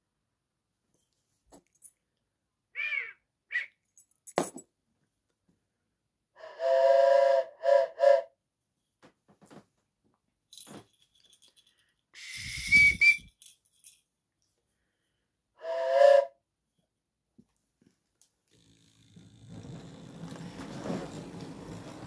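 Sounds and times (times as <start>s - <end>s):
steam locomotive whistle toots: 6.4s - 8.4s, 12.2s - 13.3s, 15.6s - 16.4s.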